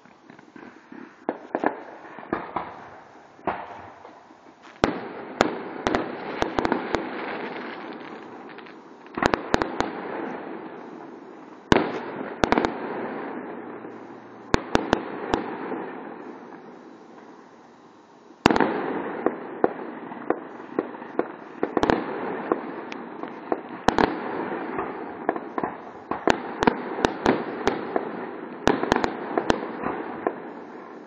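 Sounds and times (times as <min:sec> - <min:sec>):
fireworks bursting: 0:00.0 - 0:31.0.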